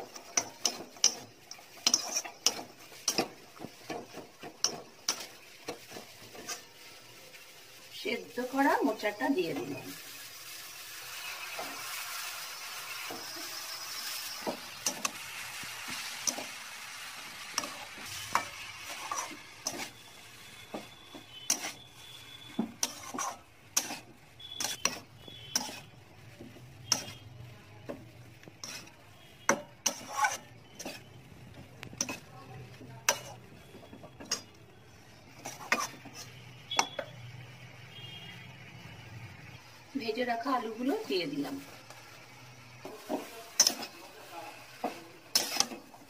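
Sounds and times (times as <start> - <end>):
spatula scraping metal wok: 0.0 - 27.4, 28.4 - 38.1, 40.1 - 46.0
soft sizzle: 0.0 - 46.0.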